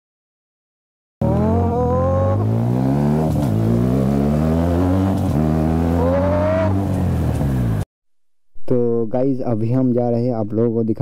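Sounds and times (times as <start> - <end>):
motorcycle engine accelerating: 1.2 - 7.8.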